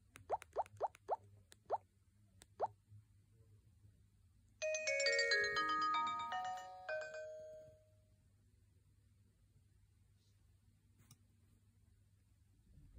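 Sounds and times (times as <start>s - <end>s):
phone speaker melody: 4.6s - 7.6s.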